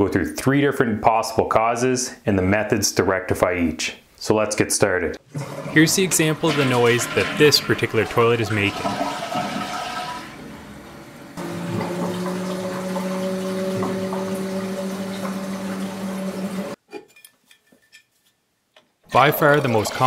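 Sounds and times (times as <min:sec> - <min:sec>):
refill valve humming: 0:05.2 - 0:16.8
toilet flushing: 0:05.2 - 0:16.8, 0:19.2 - 0:20.0.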